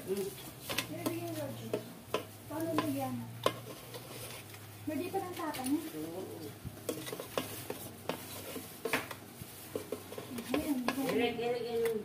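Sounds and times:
person speaking: 0:10.3 - 0:12.0.

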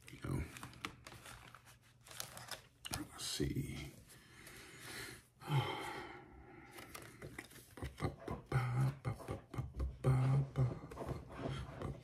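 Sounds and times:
plastic packaging crinkling: 0:00.0 - 0:03.2.

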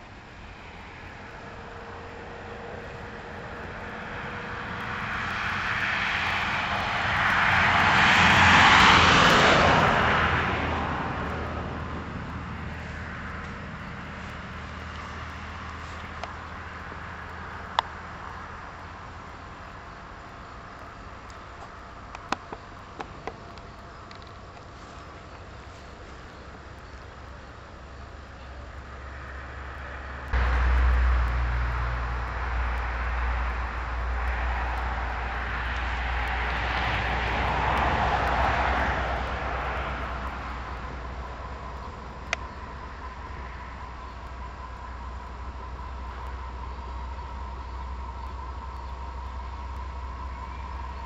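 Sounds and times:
steady low hum: 0:00.0 - 0:08.4, 0:09.7 - 0:51.0
rushing background noise: 0:00.0 - 0:51.0
steady hiss: 0:30.4 - 0:51.0.

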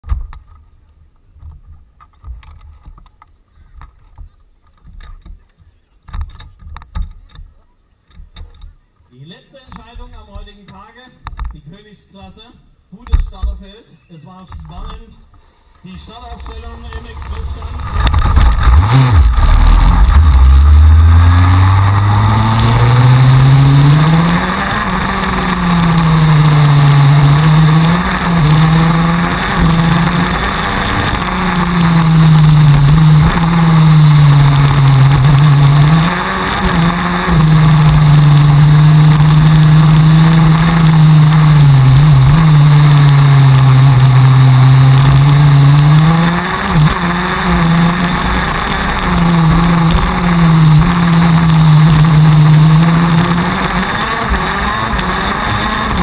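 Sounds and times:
two-stroke kart engine revving: 0:16.4 - 0:56.0.

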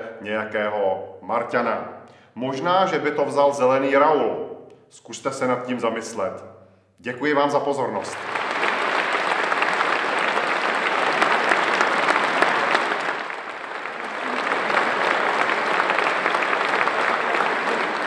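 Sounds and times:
audience applauding: 0:08.0 - 0:18.0.

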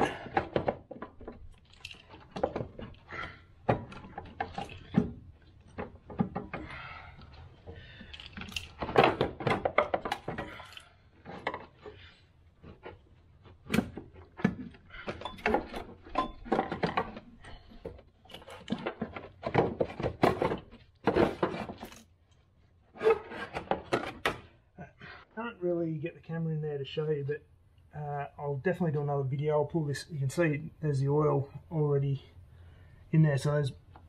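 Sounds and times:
plastic tray knocking and rattling: 0:13.7 - 0:21.9.

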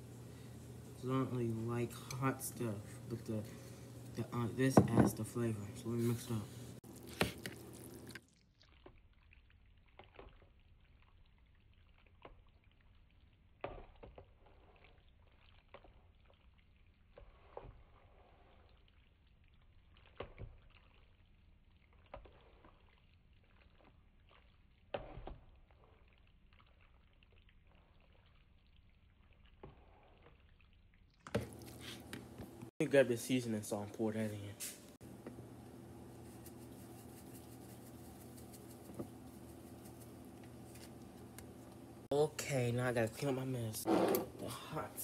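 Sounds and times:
fork stirring wet noodles: 0:06.9 - 0:12.9, 0:13.7 - 0:21.2, 0:21.9 - 0:28.8, 0:36.0 - 0:41.6.

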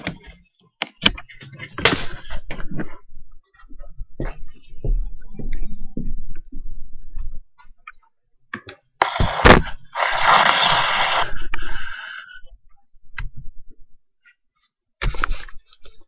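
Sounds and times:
rustling and scraping: 0:15.0 - 0:16.0.

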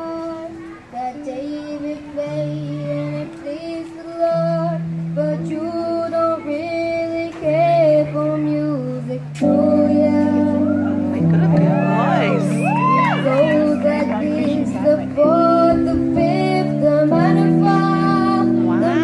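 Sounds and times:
boy singing into microphone: 0:00.0 - 0:19.0
sustained chords and bass: 0:09.0 - 0:19.0.

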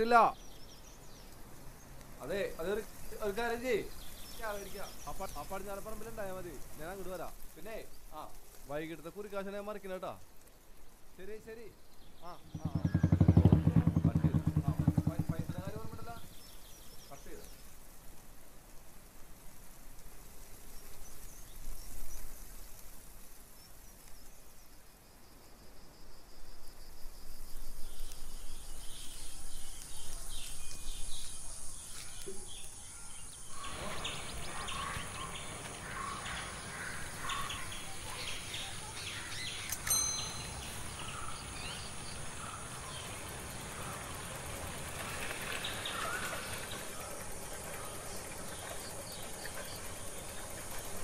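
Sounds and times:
birds chirping: 0:00.0 - 0:10.1, 0:10.8 - 0:18.0, 0:27.8 - 0:51.0
high insect drone: 0:12.4 - 0:16.8, 0:20.2 - 0:51.0
short bright ring: 0:39.7 - 0:40.8.

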